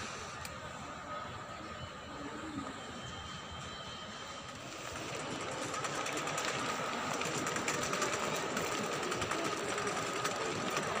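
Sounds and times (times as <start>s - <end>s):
shopping cart wheels clattering: 4.4s - 11.0s.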